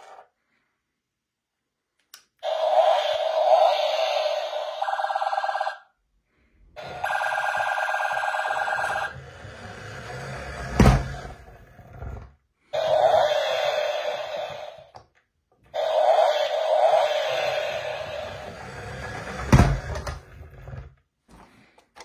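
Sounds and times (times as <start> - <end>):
toy siren warbling: 2.4 - 5.9, 6.8 - 9.2.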